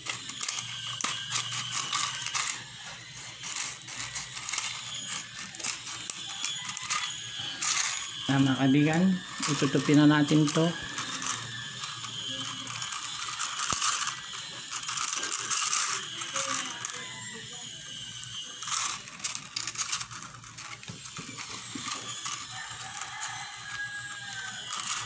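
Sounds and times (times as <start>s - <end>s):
plastic bottle crinkling: 18.6s - 25.0s.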